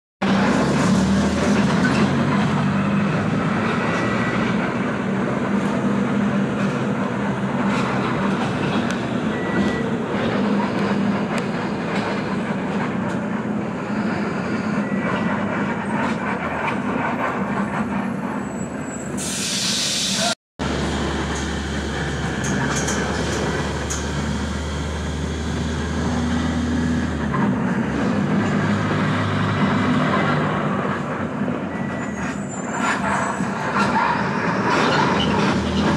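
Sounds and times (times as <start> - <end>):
street traffic rumble: 0.2 - 35.9.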